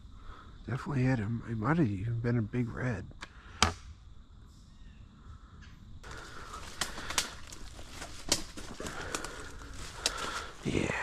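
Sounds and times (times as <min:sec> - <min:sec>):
twigs snapping: 0:06.0 - 0:10.8
footsteps crunching through dry leaves: 0:06.1 - 0:11.0.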